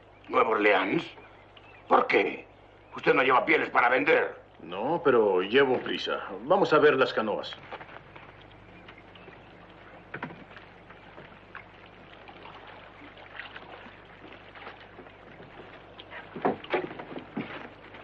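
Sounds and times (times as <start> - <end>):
faint outdoor ambience: 0.0 - 18.0
soft footsteps: 7.4 - 18.0
footsteps knocking on wooden dock: 7.6 - 11.6, 14.2 - 18.0.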